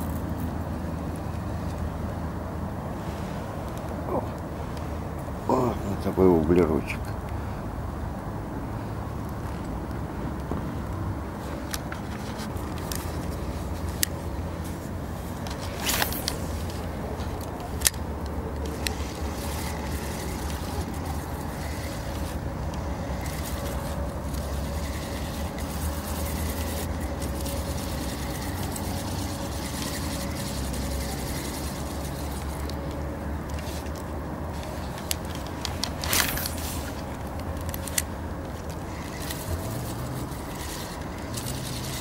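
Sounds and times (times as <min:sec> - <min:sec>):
small motor running: 0:15.6 - 0:34.0, 0:38.7 - 0:42.0.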